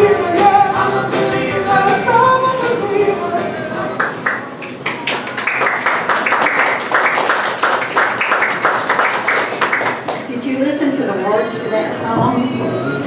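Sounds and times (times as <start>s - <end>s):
audience applauding: 4.0s - 10.3s.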